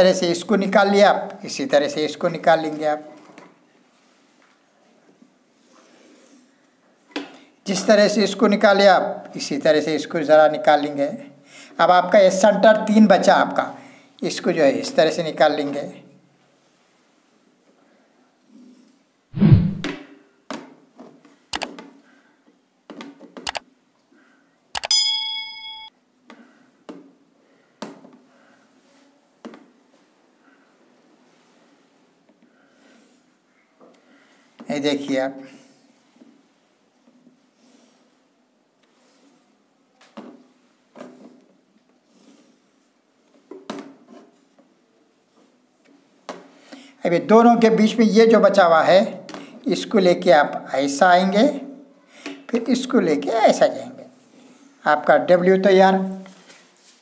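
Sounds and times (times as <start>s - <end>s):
low thump: 19.4s - 20.0s
bell-like ding: 24.8s - 25.9s.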